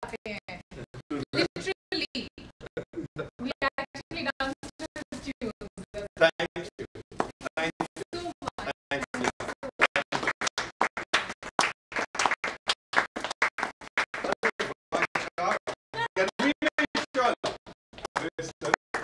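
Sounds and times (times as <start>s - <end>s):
people's voices: 0.0s - 10.3s, 14.2s - 19.0s.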